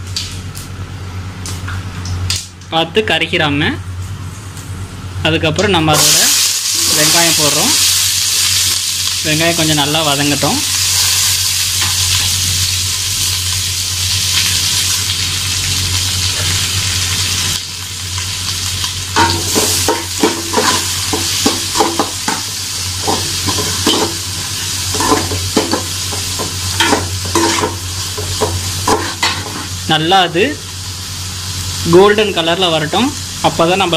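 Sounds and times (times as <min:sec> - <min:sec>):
onions sizzling in hot oil: 0:05.8 - 0:33.9.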